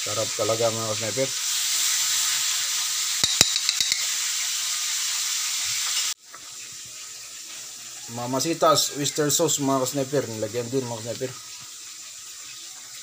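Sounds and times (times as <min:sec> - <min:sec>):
steady hiss: 0:00.0 - 0:12.8
spoon tapping metal wok: 0:03.2 - 0:04.2.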